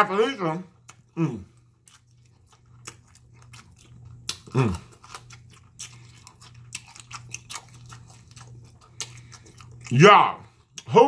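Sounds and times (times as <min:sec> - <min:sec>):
low steady hum: 0:00.0 - 0:11.0
chewing and lip smacking: 0:00.7 - 0:11.0
person humming mmm: 0:04.5 - 0:04.9.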